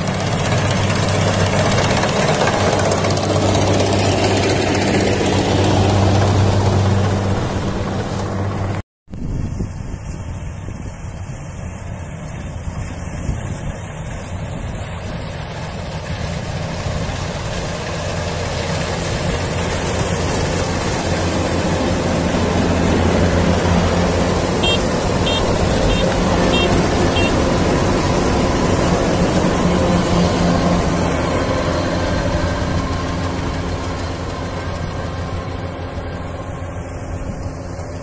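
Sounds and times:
combine harvester diesel engine: 0:00.0 - 0:38.0.

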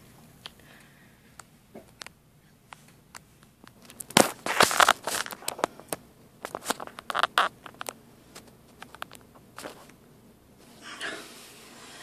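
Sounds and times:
hard plastic scraping: 0:03.8 - 0:09.9
plastic clicks and rasps: 0:06.4 - 0:08.0.

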